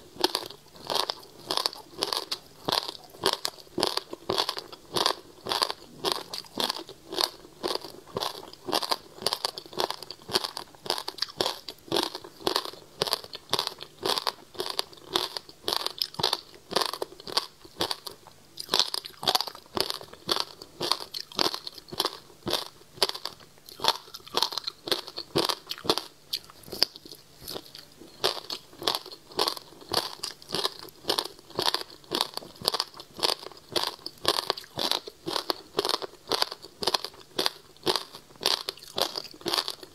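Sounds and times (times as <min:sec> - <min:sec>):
crunching and chewing ice: 0:00.1 - 0:39.9.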